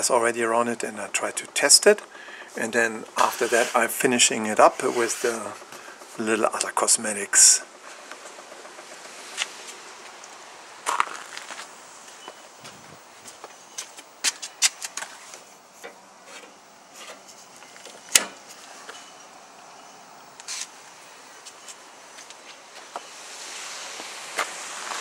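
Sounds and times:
footsteps on concrete: 9.3 - 10.2, 10.8 - 15.4, 24.0 - 25.0
breaker panel clicks and knocks: 17.8 - 18.4.

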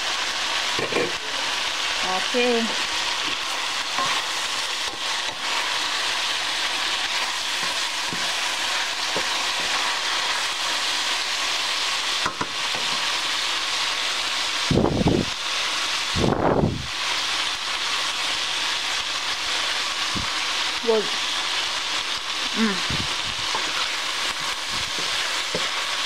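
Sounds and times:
food sizzling in skillet: 0.0 - 26.0
wooden spatula stirring and knocking: 24.4 - 25.9.

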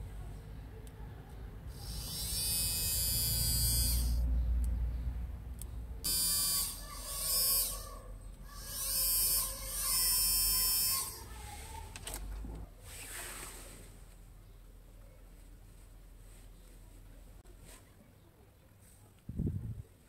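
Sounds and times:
small electric motor whining: 1.7 - 4.2, 6.1 - 11.3.

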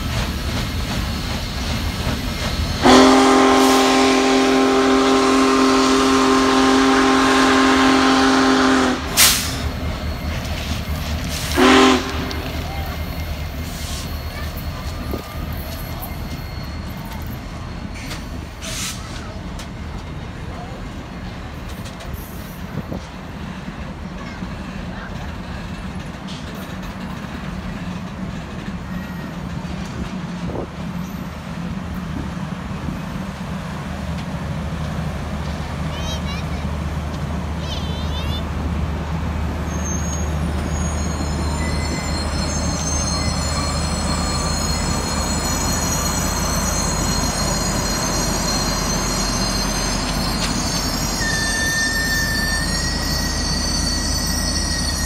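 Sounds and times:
train rumble: 0.0 - 55.0
steam whistle chord: 2.8 - 9.6, 11.5 - 12.5
steam hiss: 8.9 - 14.3.

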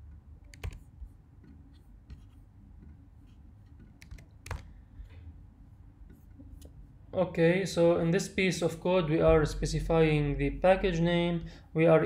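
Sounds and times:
keyboard and mouse clicks: 0.0 - 4.7
faint low hum: 0.0 - 12.0.

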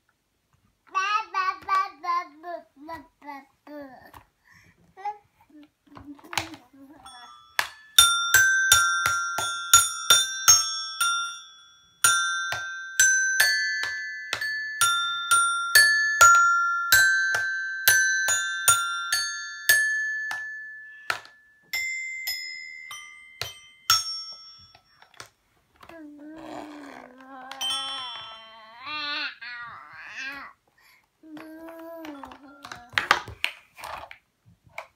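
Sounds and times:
toy xylophone notes: 6.3 - 25.3, 26.4 - 29.2.

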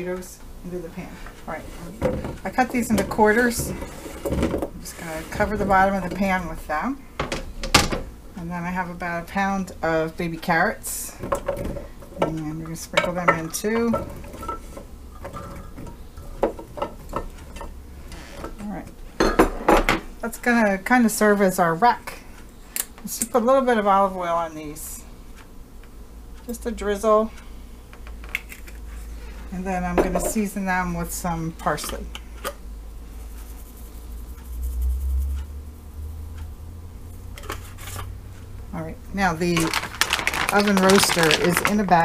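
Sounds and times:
carrots clattering into a pan: 39.5 - 42.0.

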